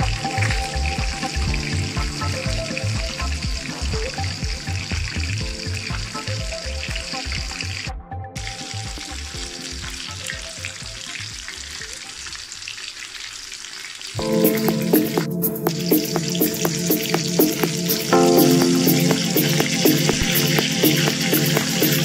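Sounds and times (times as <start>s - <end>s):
fish deep-frying in oil: 8.4s - 14.2s.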